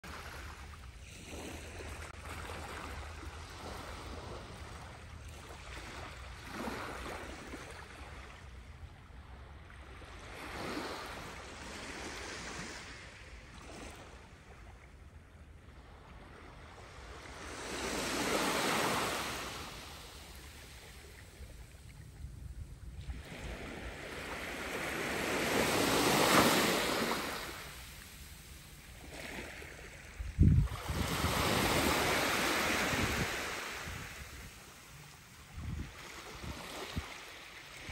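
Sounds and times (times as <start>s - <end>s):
waves lapping on sandy shore: 0.0s - 37.9s
wind rumble on microphone: 21.0s - 24.0s, 30.0s - 37.9s.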